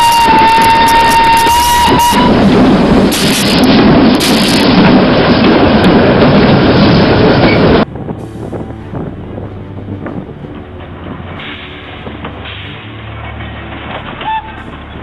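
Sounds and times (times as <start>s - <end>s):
steam locomotive whistle: 0.0s - 2.4s
train wheels rumbling on rails: 0.0s - 15.0s.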